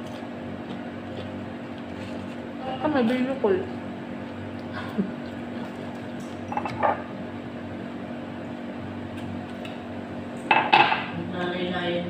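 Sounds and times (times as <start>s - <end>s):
low room hum: 0.0s - 12.0s
tableware clinking: 6.5s - 7.1s.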